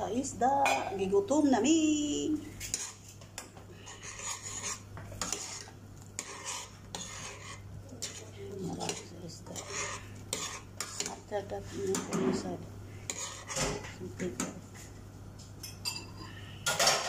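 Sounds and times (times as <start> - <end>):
metal ladle scraping pot: 2.6 - 3.2, 3.8 - 11.2, 11.8 - 14.0.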